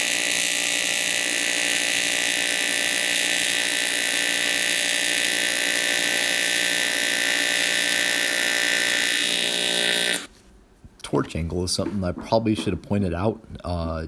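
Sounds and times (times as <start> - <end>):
welding arc buzzing: 0.0 - 10.3.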